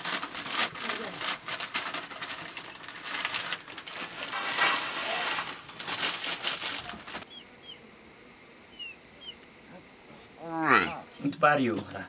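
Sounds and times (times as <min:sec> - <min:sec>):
fire crackling: 0:00.0 - 0:07.4
high falling bird chirps: 0:07.2 - 0:07.9, 0:08.7 - 0:09.4.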